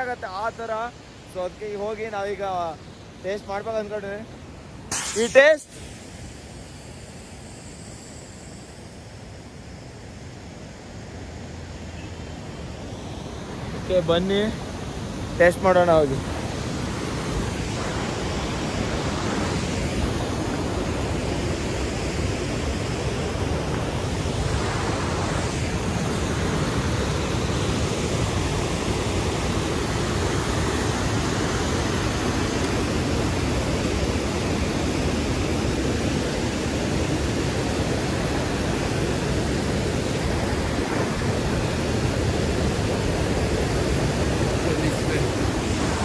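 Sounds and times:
mountain stream rushing: 11.2s - 46.0s.

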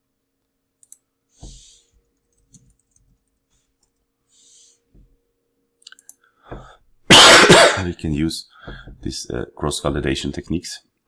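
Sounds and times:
soft clicks: 0.4s - 1.0s, 5.8s - 6.2s.

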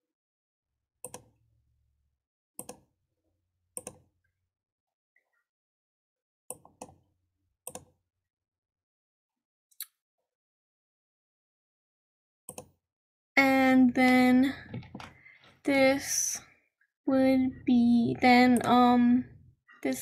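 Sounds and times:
computer mouse clicks: 1.0s - 1.3s, 2.6s - 2.8s, 3.8s - 4.0s, 7.7s - 7.9s, 12.5s - 12.7s.

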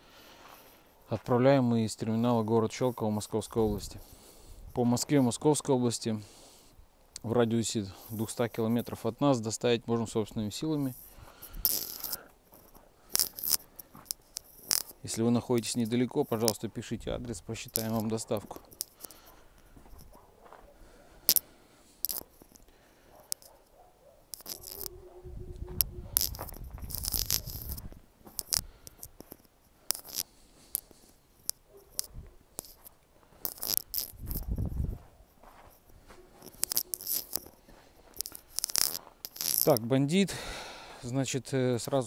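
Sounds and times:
footsteps crunching on snow: 17.6s - 22.6s, 24.4s - 29.4s, 30.0s - 39.8s
low microphone rumble: 24.9s - 28.0s.

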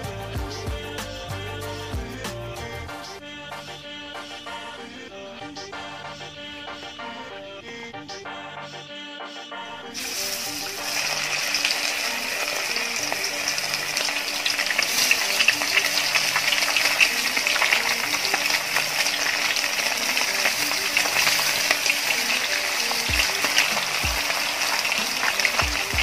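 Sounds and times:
light background music: 0.0s - 26.0s
chicken sizzling in hot oil: 10.0s - 26.0s.

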